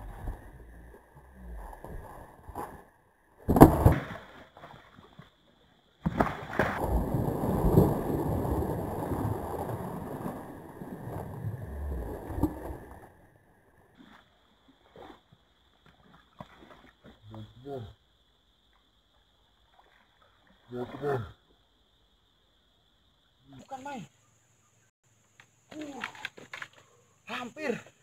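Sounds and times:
water sloshing and churning: 3.5 - 17.4, 19.5 - 21.1
sharp splash in water: 6.0 - 10.1, 16.0 - 17.1.

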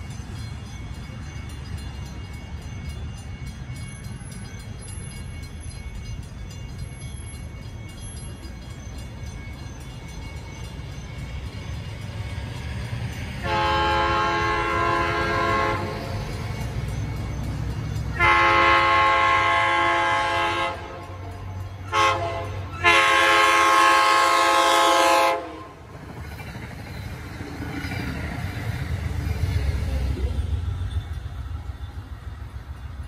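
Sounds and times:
train rumble: 0.0 - 33.0
train horn blasts: 13.4 - 16.1, 18.1 - 21.2, 21.9 - 25.9.

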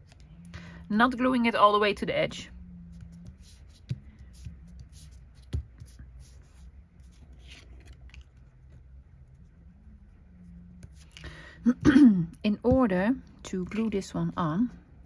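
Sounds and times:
faint low hum: 0.0 - 15.0
paper rustling: 3.4 - 8.9.

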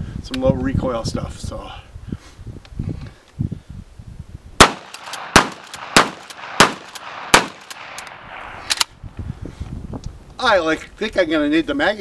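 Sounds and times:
shotgun shots: 4.6 - 8.9.

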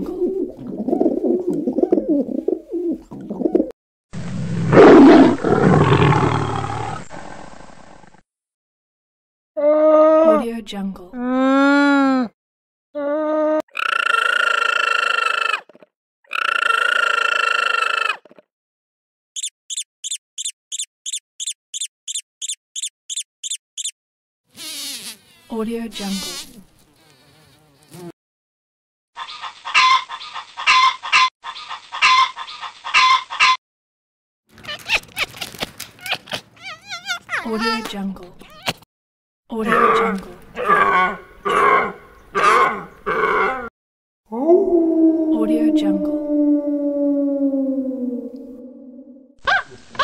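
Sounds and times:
dove cooing: 0.0 - 3.7
tiger roaring: 4.2 - 8.1
mouse squeaking: 19.4 - 24.0, 34.6 - 38.8
buzzing: 24.5 - 25.5
alpaca call: 36.1 - 37.9.

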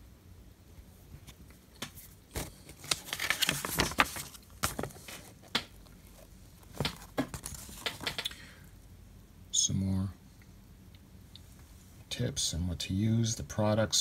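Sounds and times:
paper pages rustling and crackling: 1.2 - 8.2.

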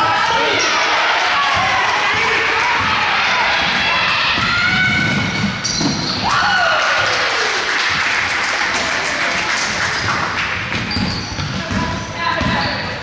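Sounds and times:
crowd cheering and clapping: 0.0 - 5.2, 6.2 - 10.9.

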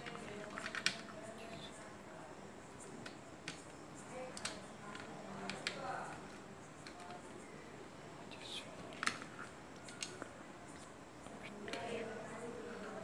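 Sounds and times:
plastic parts clicking: 4.3 - 7.2, 8.9 - 10.3.

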